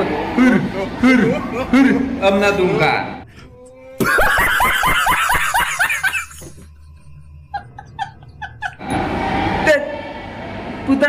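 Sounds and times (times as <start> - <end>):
man laughing hard: 4.0 - 8.8.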